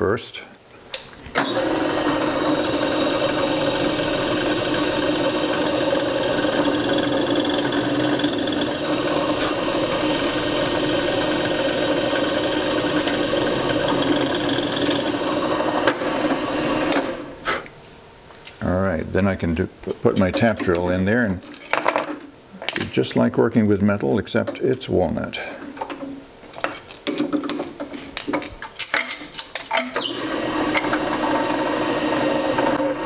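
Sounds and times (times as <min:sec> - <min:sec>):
drill press running: 0:01.3 - 0:17.4, 0:29.9 - 0:33.0.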